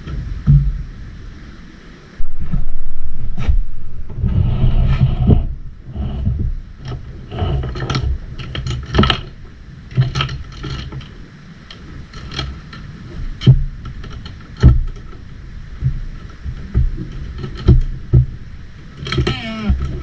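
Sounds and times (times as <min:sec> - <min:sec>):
steady low rumble: 0:00.0 - 0:20.0
heavy thumps: 0:02.2 - 0:07.0
clicks rattles and knocks of frame: 0:06.4 - 0:20.0.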